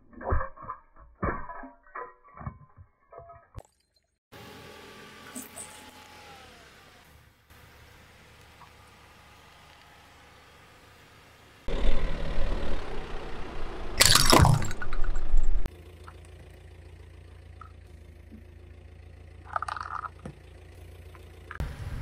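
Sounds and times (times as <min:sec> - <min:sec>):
car engine running low: 0:04.4 - 0:22.0
car tyre crushing objects: 0:14.0 - 0:15.0
loud crunch: 0:14.0 - 0:15.0.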